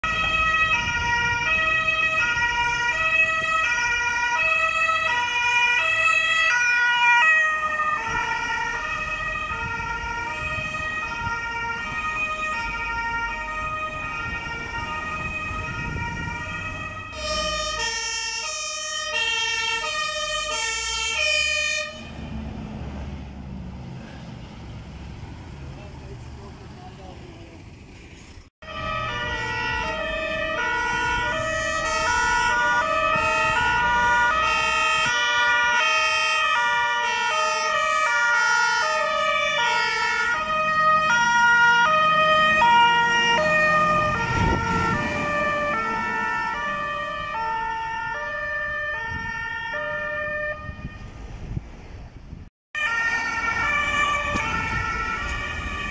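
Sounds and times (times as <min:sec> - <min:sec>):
two-tone emergency sirens: 0:00.0 - 0:25.0, 0:28.6 - 0:51.6, 0:52.7 - 0:55.9
vehicle passing: 0:20.8 - 0:35.0, 0:39.1 - 0:48.0.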